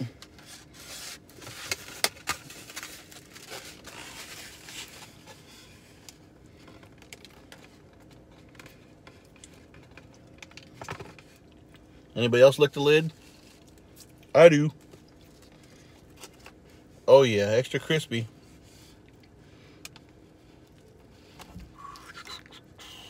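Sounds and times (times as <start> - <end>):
foam box crinkling and rustling: 0.4 - 5.9.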